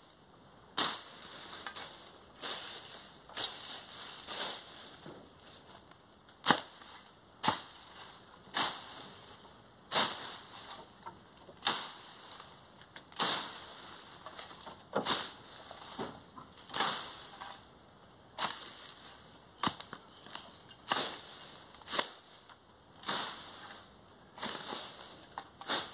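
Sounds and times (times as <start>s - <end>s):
machete swishing through grass: 0.8s - 5.0s, 9.9s - 10.8s, 16.7s - 17.4s, 18.4s - 22.4s, 23.0s - 23.7s, 24.4s - 25.9s.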